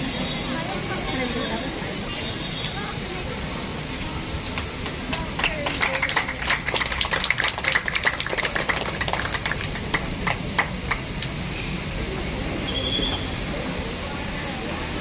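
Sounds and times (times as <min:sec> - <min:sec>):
audience clapping: 0:04.4 - 0:11.4.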